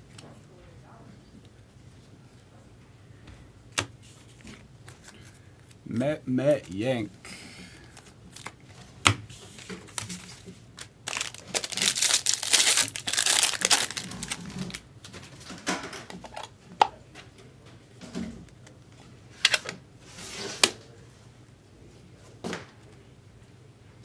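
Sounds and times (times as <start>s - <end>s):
foil pack tearing and crinkling: 9.5s - 14.8s.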